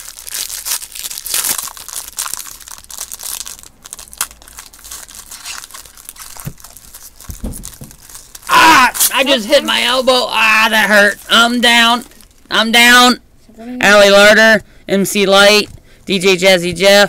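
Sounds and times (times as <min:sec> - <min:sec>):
card pack wrappers crinkling: 0:00.0 - 0:12.5.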